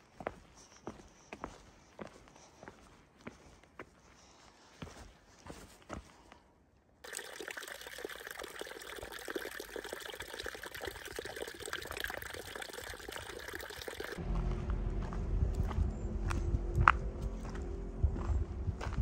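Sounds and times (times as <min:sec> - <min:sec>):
footsteps on dirt trail: 0:04.8 - 0:06.2, 0:14.2 - 0:19.0
stream trickling over rocks: 0:07.0 - 0:14.2.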